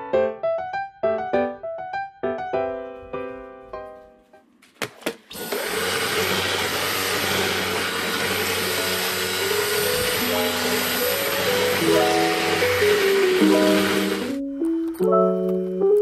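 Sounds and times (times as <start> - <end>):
faint piano music: 0.0 - 4.6, 8.7 - 16.0
stick vacuum cleaner running: 5.0 - 14.5.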